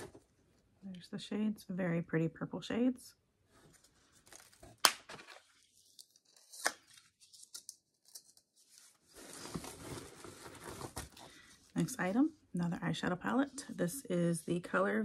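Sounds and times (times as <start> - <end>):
packaging rustling and tearing: 3.7 - 11.3.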